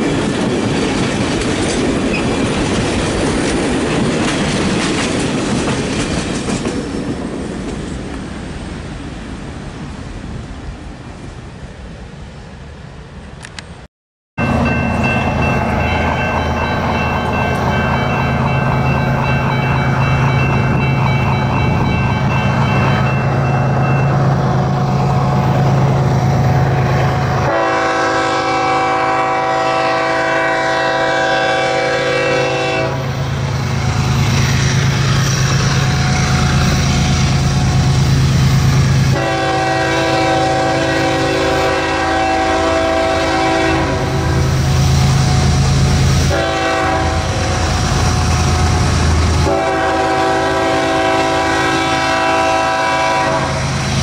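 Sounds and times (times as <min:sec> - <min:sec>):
locomotive air horn blasts: 0:27.4 - 0:33.1, 0:39.1 - 0:44.5, 0:46.3 - 0:47.6, 0:49.4 - 0:53.7.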